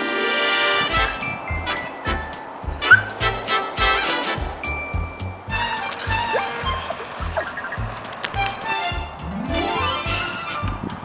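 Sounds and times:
background music with steady beat: 0.0s - 11.0s.

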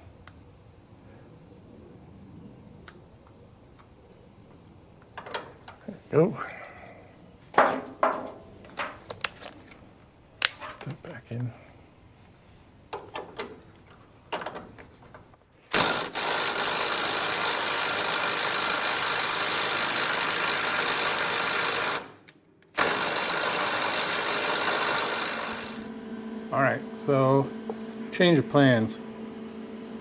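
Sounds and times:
impact wrench hammering: 22.8s - 25.9s.

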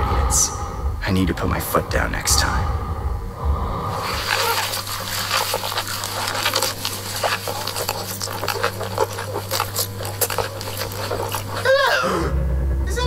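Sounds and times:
low hum: 0.0s - 13.0s
person chewing food: 3.9s - 12.1s.

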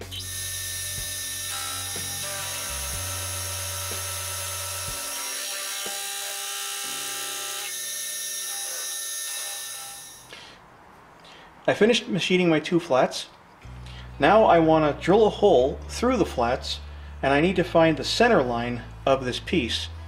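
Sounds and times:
background music with bass: 0.0s - 5.2s, 13.6s - 20.0s
milling machine cutting metal: 0.1s - 10.2s.

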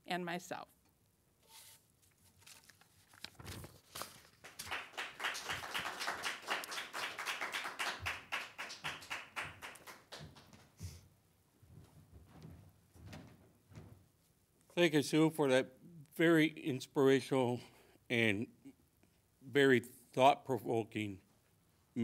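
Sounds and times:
audience applauding: 4.3s - 10.8s.

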